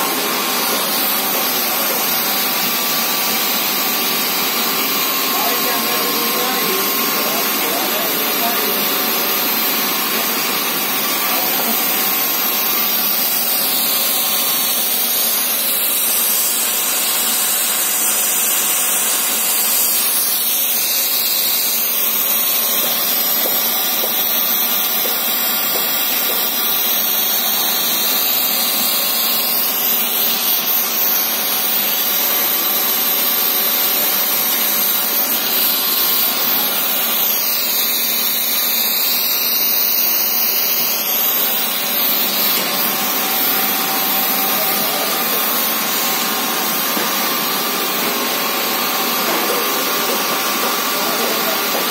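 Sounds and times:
machinery noise: 0.0s - 51.9s.

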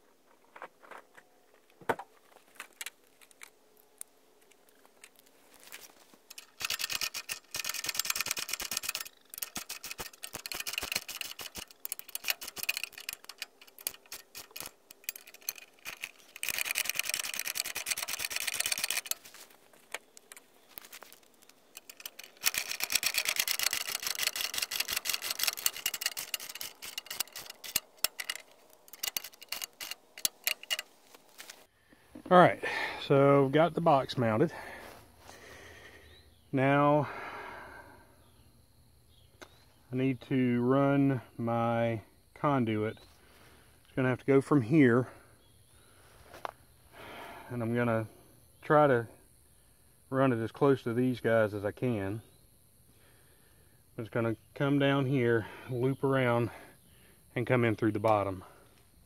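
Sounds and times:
power driver clattering: 6.3s - 20.5s, 21.6s - 30.9s.

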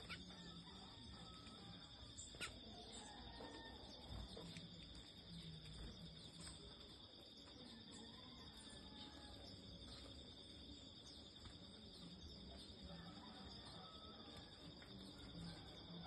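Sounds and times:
bird chirps: 0.0s - 3.4s
high-pitched insect chorus: 0.0s - 16.0s.

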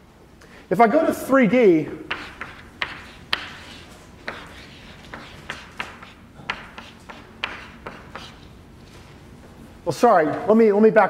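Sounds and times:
chalk tapping and scraping: 2.1s - 8.5s.

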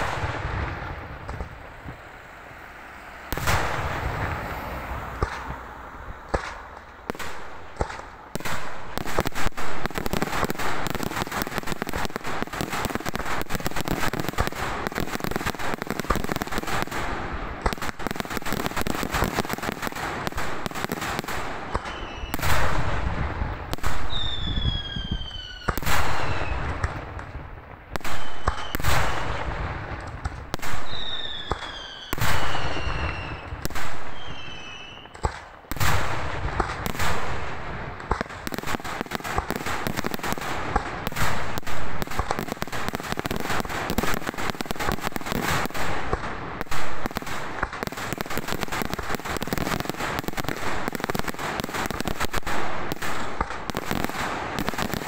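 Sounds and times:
rapid crackle of small bangs: 0.0s - 2.0s, 5.1s - 5.6s, 6.2s - 24.6s, 25.6s - 34.2s, 35.1s - 55.0s
falling firework whistles: 21.6s - 22.8s, 23.8s - 27.0s, 28.0s - 29.4s, 30.6s - 36.0s.

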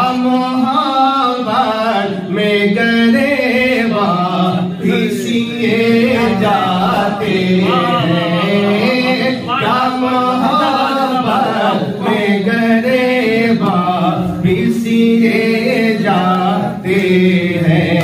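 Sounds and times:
man singing devotional poem: 0.0s - 18.0s.

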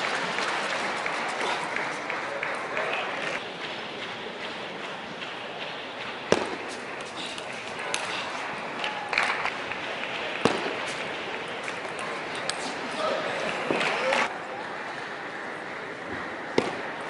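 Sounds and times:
hall hubbub: 0.0s - 17.0s.

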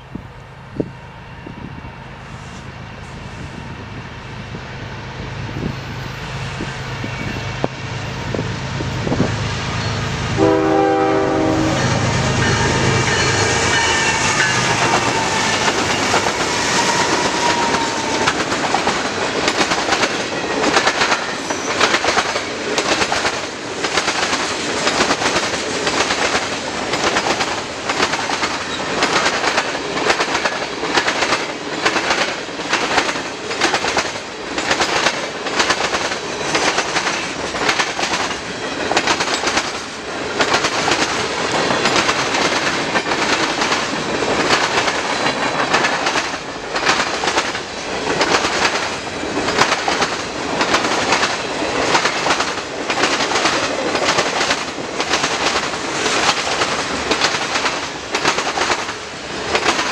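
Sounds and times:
diesel locomotive rumble: 0.1s - 21.1s
train horn blast: 9.8s - 18.4s.

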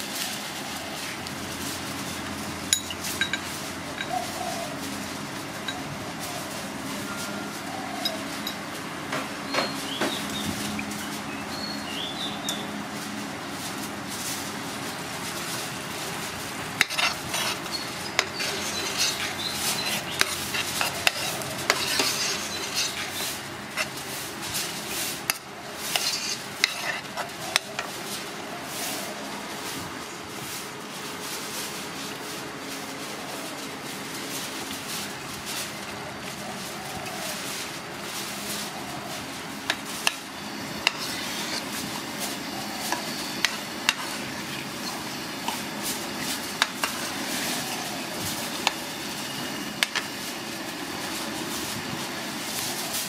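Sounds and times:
metal ladle scraping pot: 16.8s - 24.0s, 25.2s - 27.9s, 39.7s - 41.7s.

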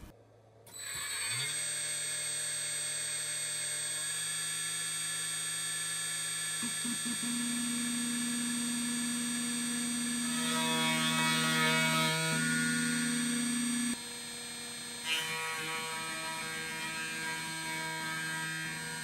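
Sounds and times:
router spindle whine: 0.7s - 19.0s
higher machine tones: 6.6s - 11.2s, 12.1s - 14.0s
low machine hum: 6.6s - 15.0s.

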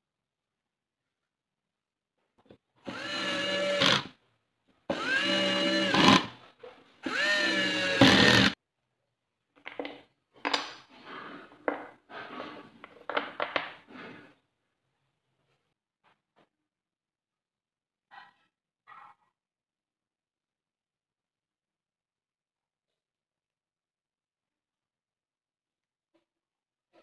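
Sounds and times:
cordless drill drilling wood: 2.8s - 4.1s, 4.9s - 6.4s, 7.0s - 8.6s.

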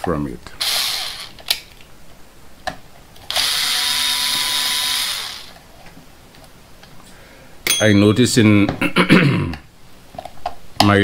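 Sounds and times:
cordless screwdriver running: 0.6s - 1.3s, 3.3s - 5.6s.

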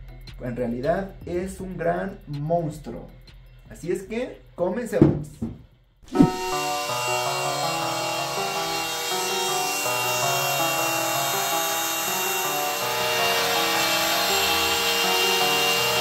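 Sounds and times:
keyboard background music: 6.1s - 16.0s
router spindle whine cutting: 6.1s - 16.0s.

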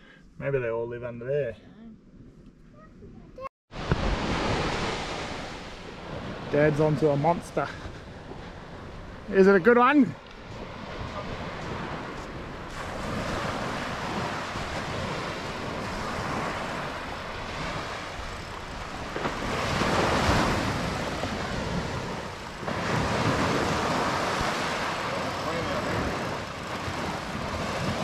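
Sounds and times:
waves breaking on beach: 3.7s - 28.0s
wind buffeting microphone: 10.4s - 28.0s.

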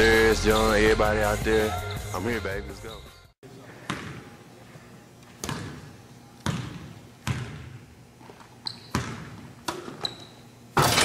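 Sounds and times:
basketball bouncing on wood floor: 5.4s - 7.8s, 8.8s - 9.9s
sneaker squeaks: 5.4s - 10.6s.

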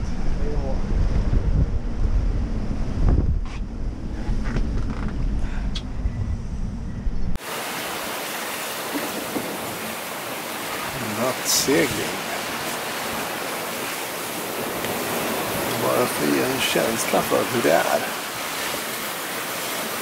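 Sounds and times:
wind buffeting microphone: 0.0s - 7.4s, 8.2s - 20.0s
breaking waves: 7.4s - 20.0s.

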